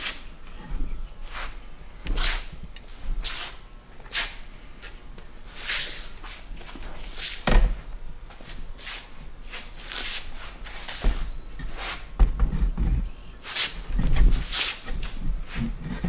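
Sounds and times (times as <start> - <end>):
footsteps scuffing on concrete: 8.3 - 12.1.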